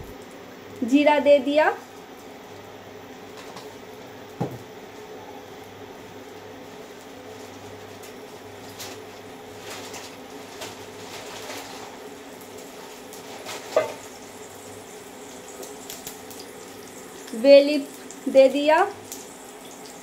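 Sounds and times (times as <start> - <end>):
seeds sizzling in oil: 5.5 - 20.0.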